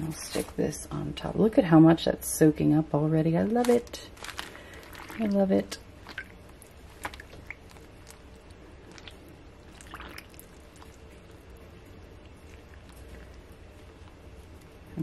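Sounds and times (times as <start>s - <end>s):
low steady hum: 0.0s - 15.0s
wet paper squishes: 3.5s - 15.0s.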